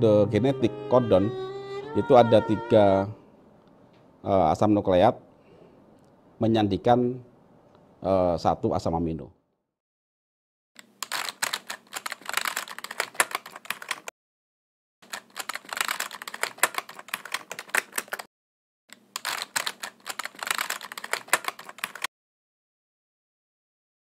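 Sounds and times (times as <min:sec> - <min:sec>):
rapid keyboard key clicks: 0:10.8 - 0:14.1, 0:15.0 - 0:18.3, 0:19.0 - 0:22.1.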